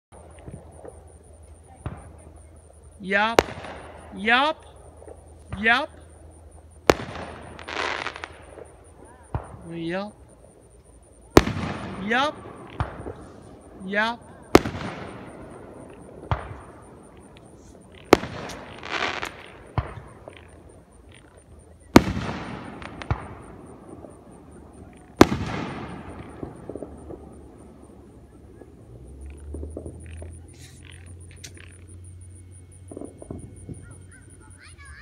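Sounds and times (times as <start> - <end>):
fireworks bursting with bangs: 0.1 - 35.0
small firework pops: 12.7 - 13.4, 16.2 - 20.6, 21.9 - 27.3.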